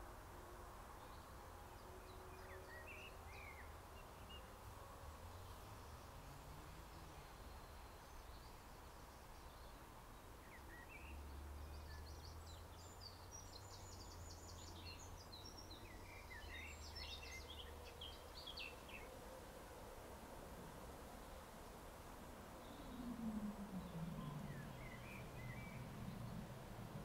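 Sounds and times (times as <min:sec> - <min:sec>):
steady low rumble: 0:22.4 - 0:27.0.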